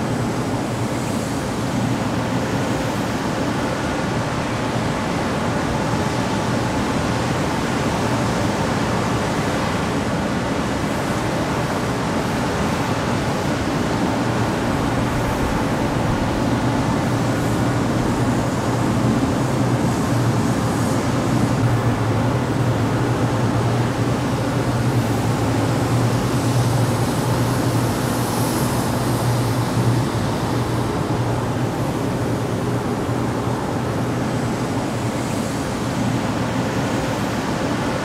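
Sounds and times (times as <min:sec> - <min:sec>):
exhaust fan running: 0:00.0 - 0:38.0.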